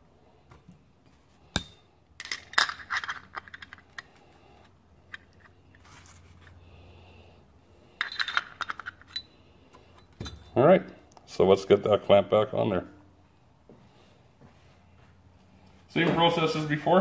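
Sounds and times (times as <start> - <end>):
metal parts clicking and clinking: 1.5 - 4.2, 8.0 - 10.6.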